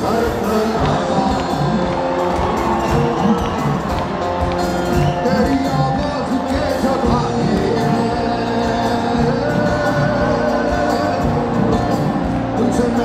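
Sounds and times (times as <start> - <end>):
drum kit beat: 0.0 - 13.0
live band music: 0.0 - 13.0.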